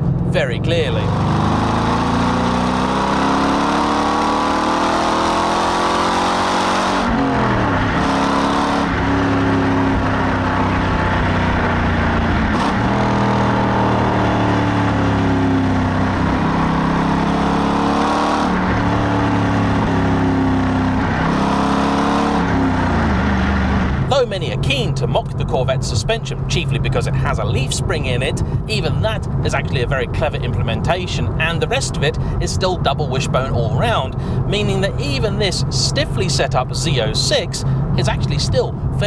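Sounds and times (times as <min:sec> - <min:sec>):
car exhaust revving: 0:00.0 - 0:39.0.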